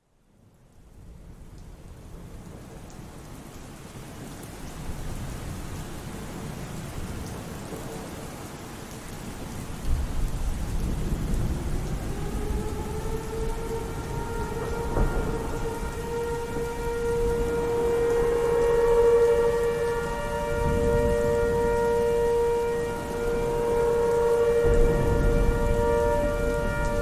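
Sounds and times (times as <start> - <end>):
rain: 0.0 - 27.0
thunder rumbling: 9.4 - 27.0.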